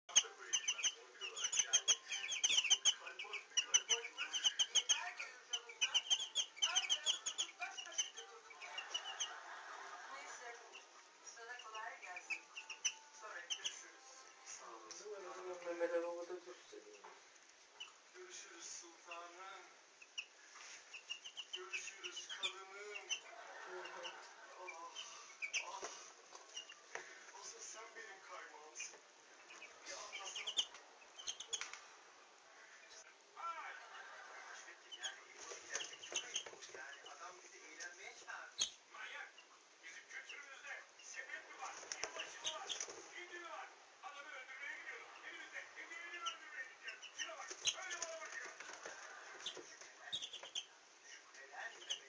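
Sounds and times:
turkey poults peeping: 0.1s - 9.5s, 12.1s - 13.8s, 20.0s - 25.8s, 28.8s - 31.7s, 46.2s - 52.0s.

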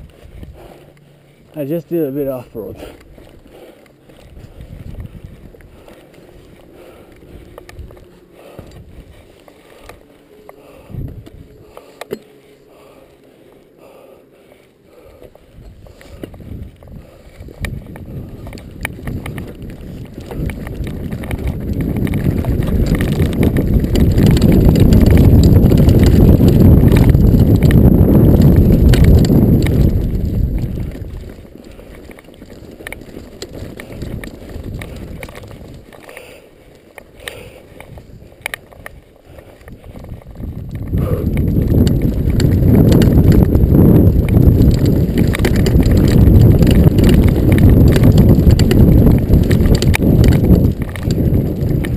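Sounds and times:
bike clicks and rattles: 0.0s - 51.9s
bike tyres rolling over rough ground: 0.0s - 51.9s
wind rumble: 0.0s - 51.9s.

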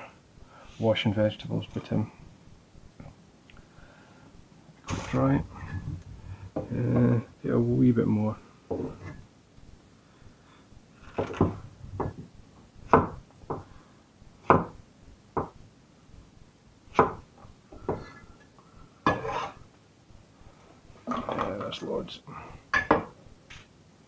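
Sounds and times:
knife chopping on wooden board: 11.1s - 12.3s, 12.9s - 13.7s, 14.4s - 14.8s, 16.9s - 17.2s.

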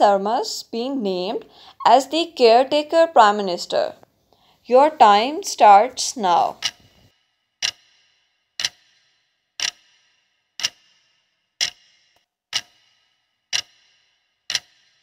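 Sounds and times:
clock ticking with ringing tail: 6.2s - 15.0s.

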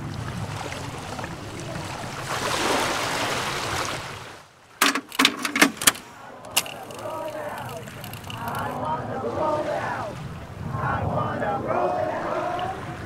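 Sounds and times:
seawater washing among rocks: 0.0s - 9.1s
sharp clicks: 4.8s - 8.8s.

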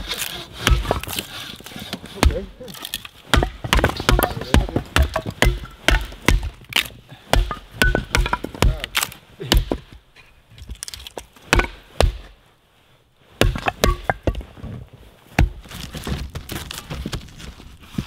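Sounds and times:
firewood knocking together: 0.6s - 12.3s, 13.4s - 14.7s.

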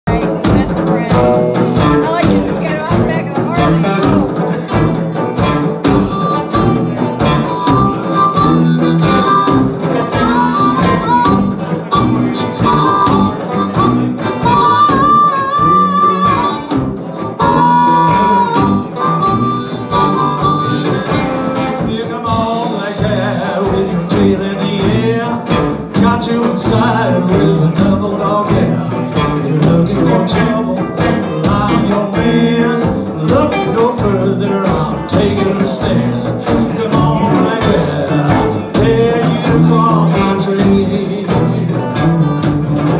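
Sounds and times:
live blues band: 0.0s - 42.9s
harmonica bent notes: 0.1s - 42.9s.

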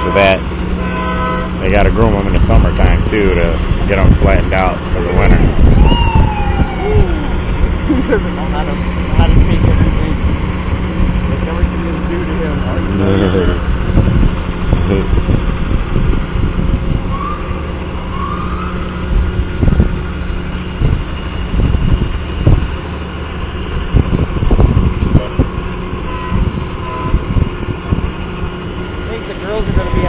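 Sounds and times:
heavy vehicle engines running: 0.0s - 30.0s
low thumps: 13.6s - 22.9s.

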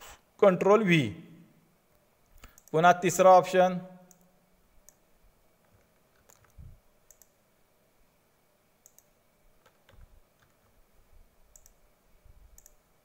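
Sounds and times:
computer mouse and keyboard clicks: 2.4s - 2.8s, 5.6s - 7.4s, 8.8s - 10.8s, 11.5s - 11.8s, 12.5s - 12.8s.

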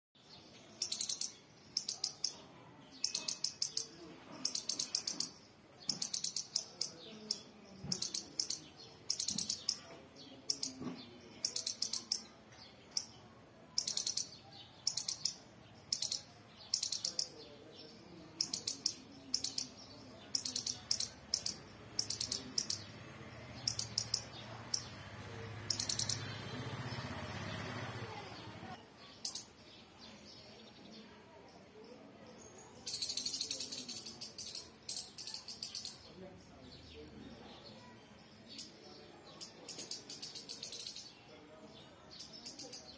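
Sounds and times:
squirrel high-pitched chirps: 0.8s - 10.8s, 11.4s - 13.2s, 13.8s - 17.4s, 18.4s - 23.0s, 23.6s - 25.0s, 25.7s - 26.3s, 29.1s - 29.6s, 32.8s - 36.0s, 39.4s - 41.2s, 42.2s - 42.9s.

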